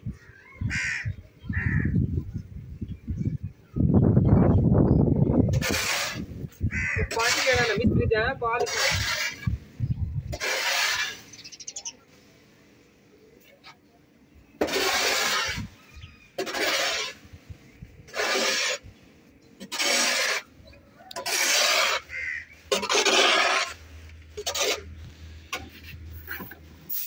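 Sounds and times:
shovel scraping concrete floor: 0:05.5 - 0:06.4, 0:07.1 - 0:07.9, 0:08.6 - 0:09.6, 0:10.3 - 0:11.5, 0:14.6 - 0:15.8, 0:16.4 - 0:17.3, 0:18.1 - 0:18.9, 0:19.6 - 0:20.5, 0:21.1 - 0:27.0.

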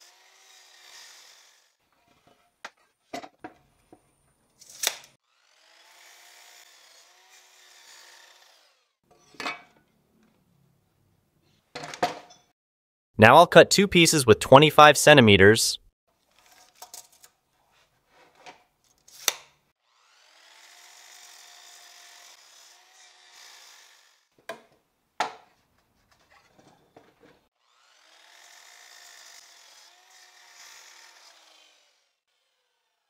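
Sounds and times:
mitre saw cutting wood: 0:00.0 - 0:02.2, 0:04.8 - 0:09.0, 0:19.9 - 0:24.4, 0:27.6 - 0:33.0.

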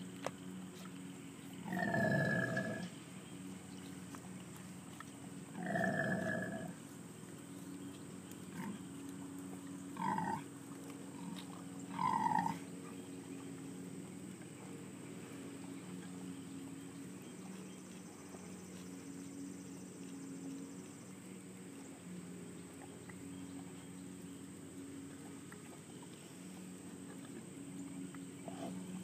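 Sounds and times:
pigs calling: 0:08.5 - 0:08.8, 0:09.9 - 0:10.5, 0:11.1 - 0:12.6, 0:28.4 - 0:28.9.

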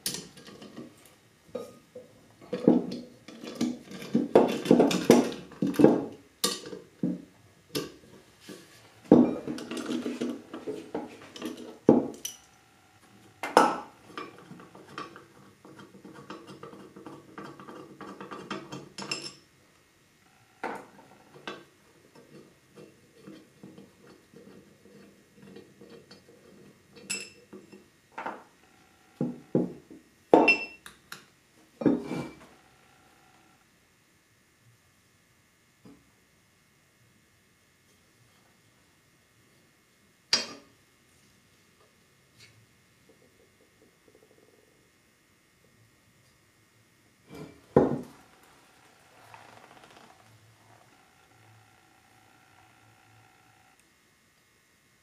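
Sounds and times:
knocks on wooden workbench: 0:47.8 - 0:48.0.

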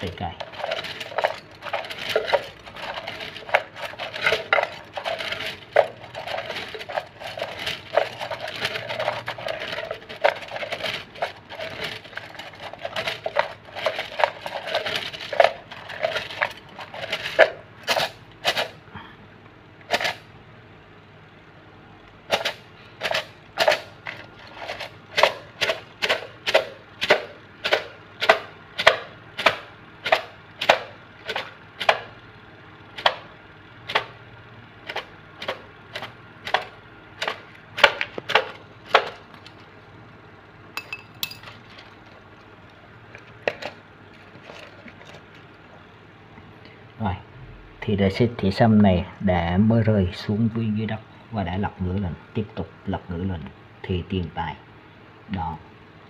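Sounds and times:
bamboo sticks rattling in cylinder: 0:00.0 - 0:18.8, 0:19.8 - 0:20.3, 0:22.3 - 0:32.2, 0:32.9 - 0:34.2, 0:34.8 - 0:40.1, 0:40.8 - 0:45.8.

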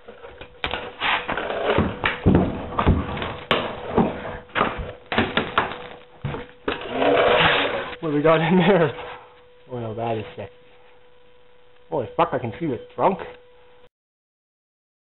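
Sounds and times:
metal grinding and scraping: 0:00.1 - 0:05.0, 0:06.6 - 0:08.0.

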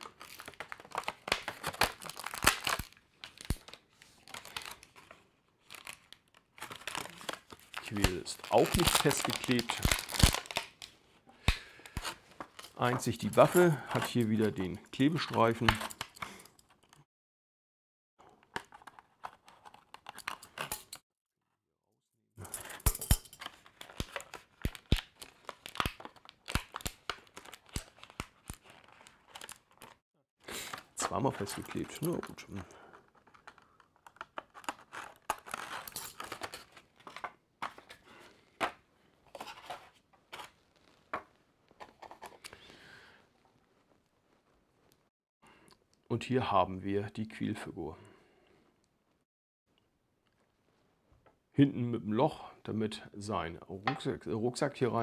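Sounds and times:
plastic blister crinkling and snapping: 0:00.0 - 0:14.6, 0:23.4 - 0:30.0, 0:30.7 - 0:38.0.

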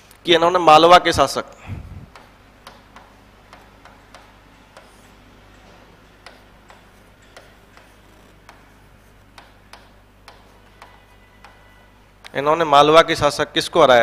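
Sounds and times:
writing taps on a board: 0:02.1 - 0:11.8.

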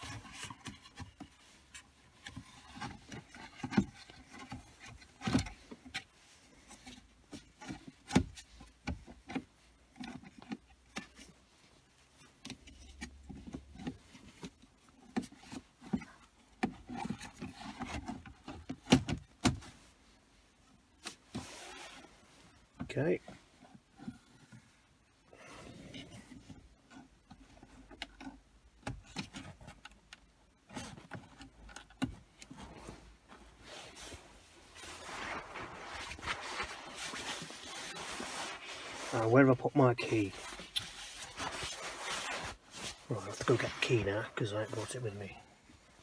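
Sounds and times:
plastic rubbing on plastic: 0:26.2 - 0:46.0.

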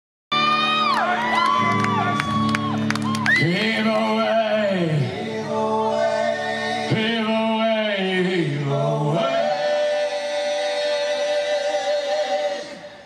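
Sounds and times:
men singing long held notes: 0:03.3 - 0:13.0.

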